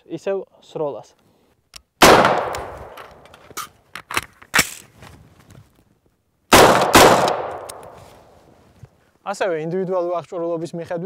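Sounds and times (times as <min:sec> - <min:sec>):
rifle shots echoing: 0:02.0 - 0:03.2, 0:06.5 - 0:08.0
sharp clicks: 0:07.1 - 0:08.0.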